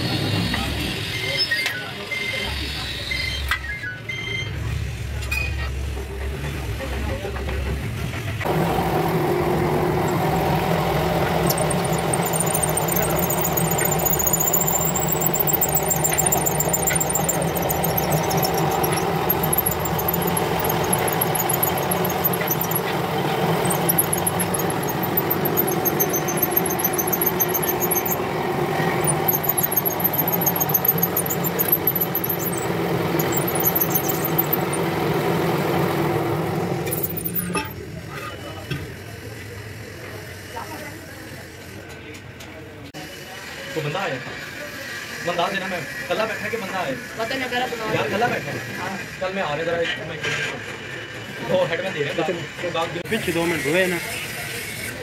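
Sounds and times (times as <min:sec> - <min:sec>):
high squeals from cutting metal: 0:00.9 - 0:04.6, 0:10.1 - 0:34.9, 0:36.8 - 0:37.8
drill press running: 0:08.5 - 0:37.6.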